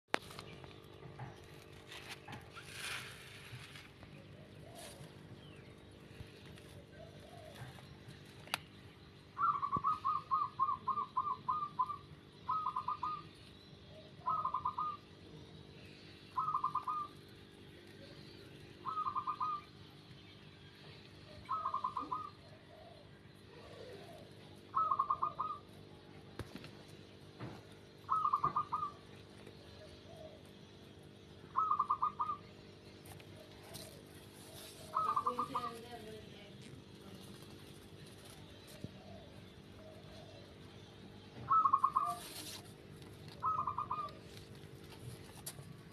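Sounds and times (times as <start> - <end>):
bird trilling: 7.0 - 13.3, 14.0 - 15.2, 16.3 - 17.3, 18.8 - 20.0, 21.3 - 23.1, 23.8 - 25.8, 28.0 - 36.4, 37.0 - 45.7.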